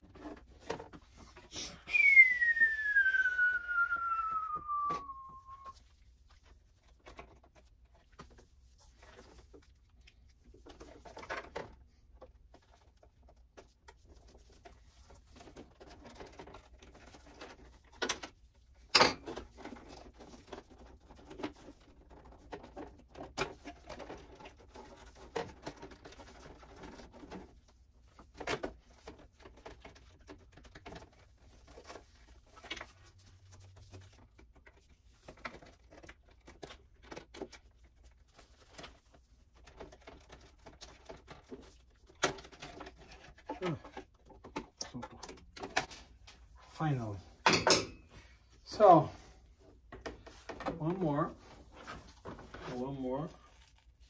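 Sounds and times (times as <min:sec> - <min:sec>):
hands rustling on plastic panel: 0:00.0 - 0:47.2, 0:48.0 - 0:54.0.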